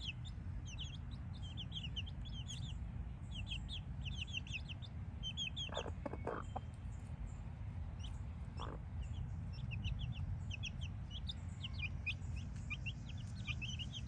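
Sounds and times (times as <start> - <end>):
chicks peeping: 0.0 - 14.0.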